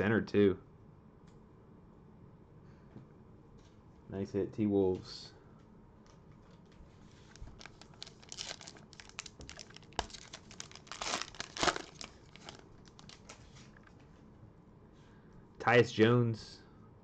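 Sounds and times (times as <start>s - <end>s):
foil wrapper tearing and crinkling: 7.3s - 13.5s.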